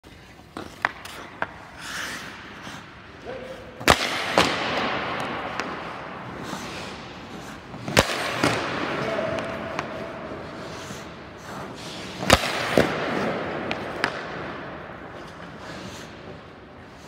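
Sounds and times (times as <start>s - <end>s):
skate blades scraping ice: 0.0s - 17.0s
stick cracking against puck: 0.4s - 2.9s, 3.8s - 16.4s
hockey stick taps: 0.5s - 1.6s, 3.8s - 5.9s, 12.2s - 14.5s.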